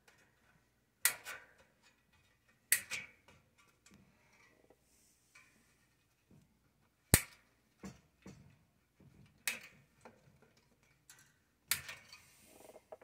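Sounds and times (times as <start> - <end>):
wire cutters snapping wire: 2.7 - 3.1, 7.2 - 7.4, 11.1 - 12.1.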